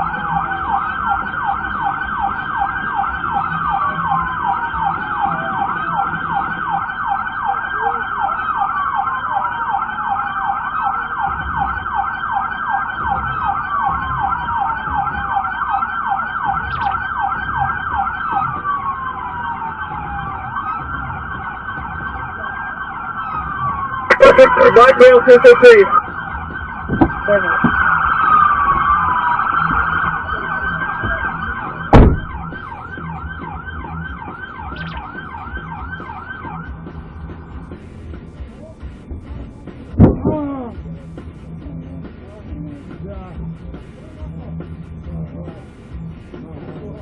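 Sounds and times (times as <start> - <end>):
police siren yelp: 0.0 - 37.6
police siren wail: 0.0 - 37.8.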